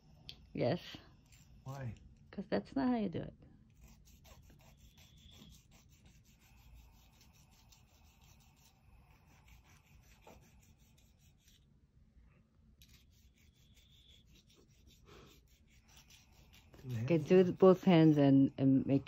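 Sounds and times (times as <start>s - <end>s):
nail file rasping on claws: 1.2s - 1.9s, 3.7s - 11.6s, 12.8s - 18.5s.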